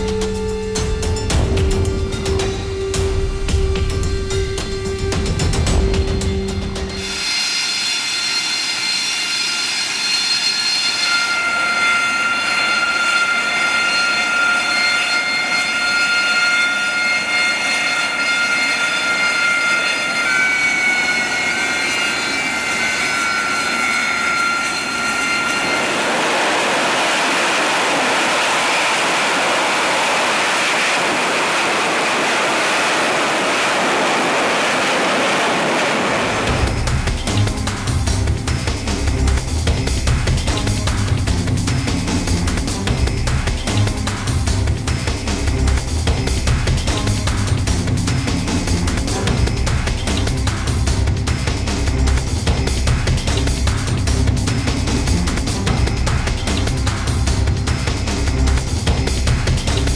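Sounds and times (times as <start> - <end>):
jet engine high whine: 0.0 - 59.9
jet noise rushing: 21.4 - 59.9.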